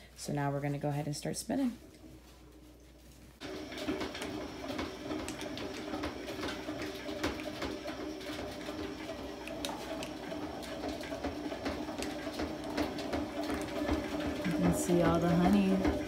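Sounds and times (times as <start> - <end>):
honey extractor whirring: 3.4 - 16.0.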